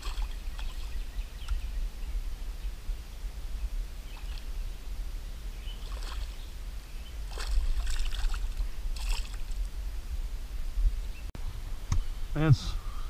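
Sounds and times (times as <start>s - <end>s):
wind rumble on microphone: 0.0s - 13.0s
fish splashing at surface: 5.8s - 6.3s, 7.3s - 9.6s.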